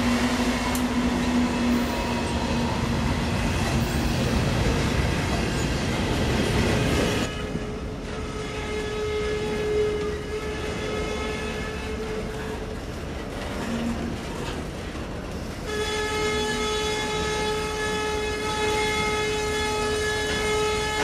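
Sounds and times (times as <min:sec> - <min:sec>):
freight train cars rumbling: 0:00.0 - 0:21.0
train horn blasts: 0:07.2 - 0:12.6, 0:15.6 - 0:21.0.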